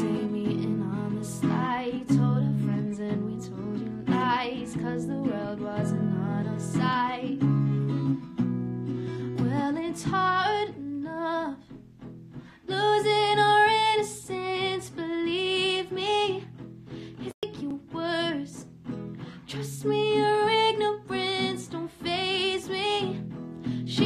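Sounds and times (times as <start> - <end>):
woman singing slow song: 0.0 - 7.9, 9.2 - 11.8, 12.6 - 16.5, 17.2 - 18.7, 19.4 - 24.0
acoustic guitar: 0.0 - 24.0.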